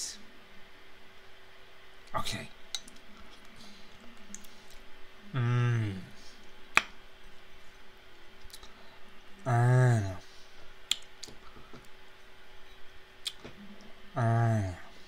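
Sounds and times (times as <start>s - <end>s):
man humming: 5.2s - 6.4s, 9.4s - 10.3s, 14.1s - 15.0s.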